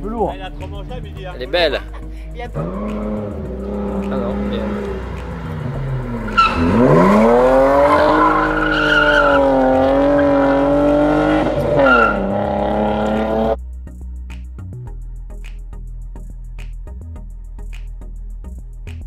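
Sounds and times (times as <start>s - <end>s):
car engine revving hard: 2.5s - 13.6s
tyre squeal: 7.7s - 9.9s, 11.6s - 12.4s.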